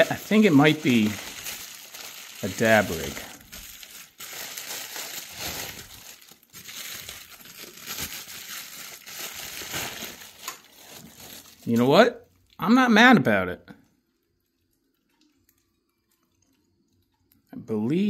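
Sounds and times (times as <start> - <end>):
packing material crinkling: 0.0 - 12.6.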